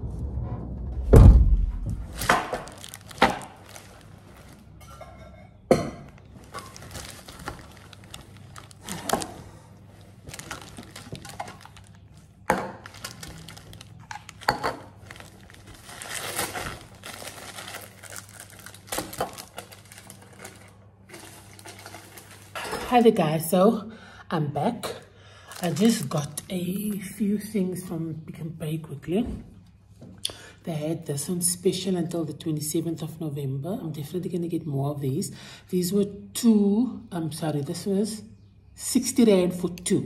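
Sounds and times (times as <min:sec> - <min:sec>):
plastic bags rustling: 0:02.0 - 0:05.4, 0:06.0 - 0:23.3, 0:25.3 - 0:27.2.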